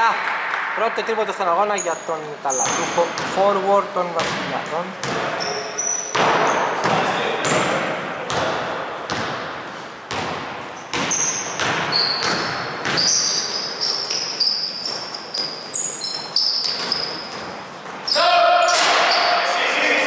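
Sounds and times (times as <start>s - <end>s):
sneaker squeaks: 1.7s - 3.6s, 5.0s - 8.4s, 10.1s - 19.6s
basketball bouncing on hardwood floor: 2.6s - 3.5s, 6.1s - 9.5s, 10.1s - 13.4s.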